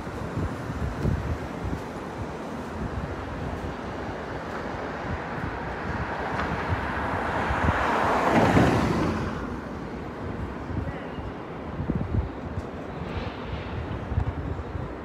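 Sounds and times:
street traffic: 0.0s - 15.0s
wind buffeting microphone: 0.0s - 15.0s
vehicle passing: 4.9s - 10.5s.

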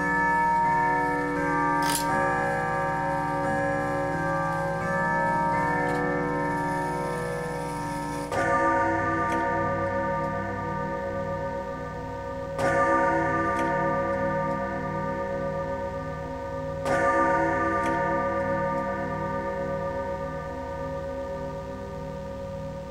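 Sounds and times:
clock bell chiming: 0.0s - 22.9s.

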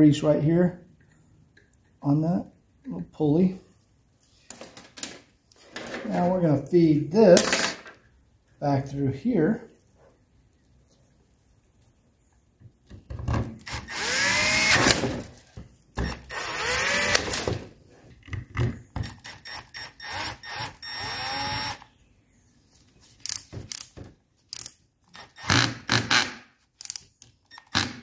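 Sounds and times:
cordless drill motor whine: 13.7s - 14.8s, 16.0s - 17.2s, 19.4s - 21.9s.

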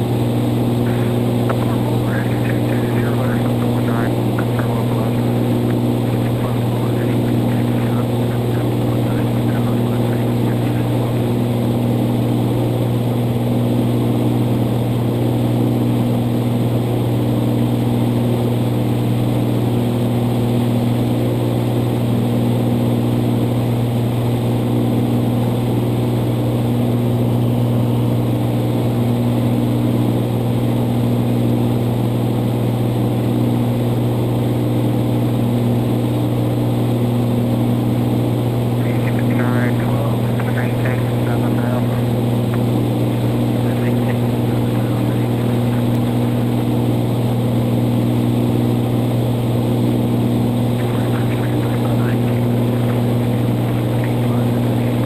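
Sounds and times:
aircraft engine and propeller drone: 0.0s - 55.0s
higher engine tones: 0.7s - 11.6s.

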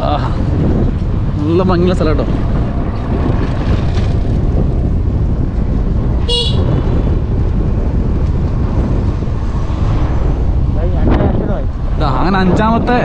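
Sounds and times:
wind buffeting microphone: 0.0s - 13.0s
vehicle horn toot: 6.2s - 6.8s.

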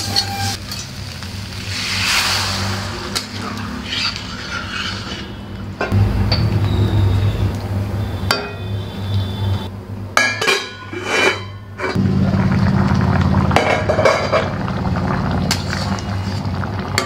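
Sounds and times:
metal spatula scraping a pot: 3.1s - 5.4s, 10.7s - 12.0s, 15.5s - 16.5s.

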